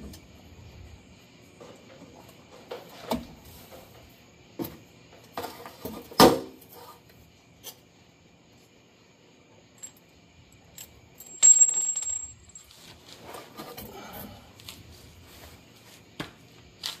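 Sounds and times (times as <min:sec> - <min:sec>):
metal clinks and rattles: 0:10.6 - 0:12.9.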